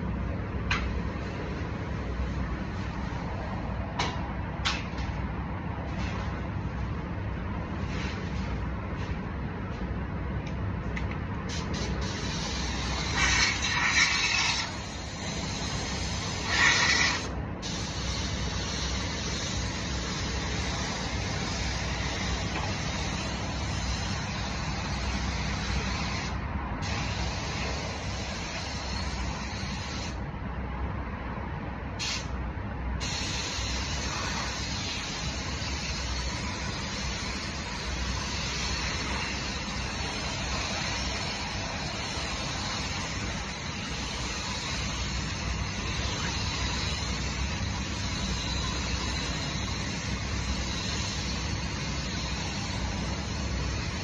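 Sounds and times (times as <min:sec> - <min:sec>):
ventilation fans rumbling: 0:00.0 - 0:54.0
spray gun hissing: 0:11.5 - 0:30.2, 0:33.0 - 0:54.0.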